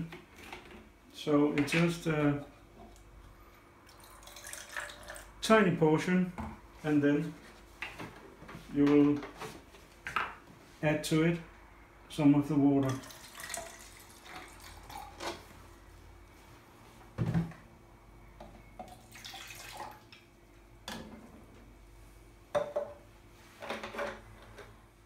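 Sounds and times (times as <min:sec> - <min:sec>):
liquid pouring: 0:03.8 - 0:05.3, 0:12.8 - 0:15.4, 0:18.9 - 0:20.2
plastic vessels knocking on worktop: 0:22.5 - 0:23.0.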